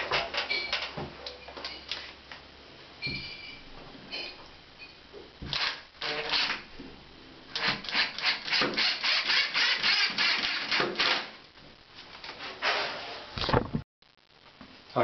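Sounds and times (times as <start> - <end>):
cordless drill driving screw: 5.5 - 6.6, 7.6 - 11.3.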